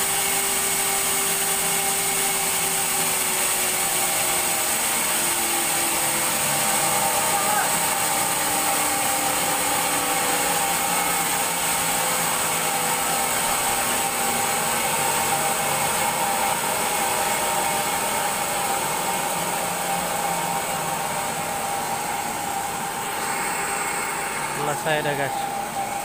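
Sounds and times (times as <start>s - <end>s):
band saw running: 0.0s - 26.0s.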